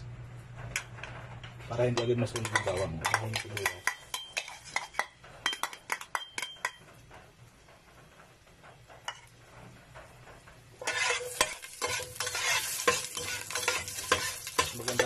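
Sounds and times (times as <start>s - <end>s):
onions tapping into metal pot: 2.0s - 6.9s, 11.2s - 15.0s
onions sizzling in hot oil: 10.8s - 15.0s.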